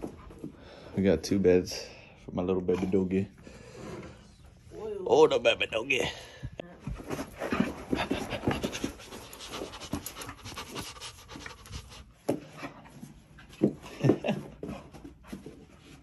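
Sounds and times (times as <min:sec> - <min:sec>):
puppy panting: 0:07.4 - 0:16.0.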